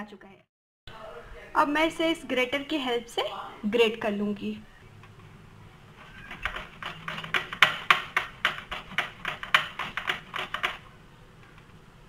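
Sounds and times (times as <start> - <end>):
banana rasping on metal grater: 5.9 - 10.8.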